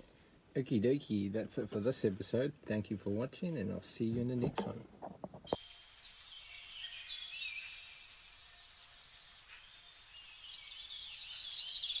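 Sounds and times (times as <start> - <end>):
faint outdoor background noise: 0.0 - 12.0
birds chirping: 10.0 - 12.0.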